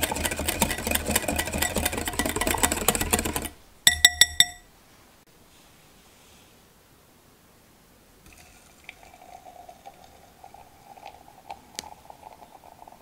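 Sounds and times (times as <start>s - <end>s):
liquid pouring through sieve: 8.3s - 13.0s.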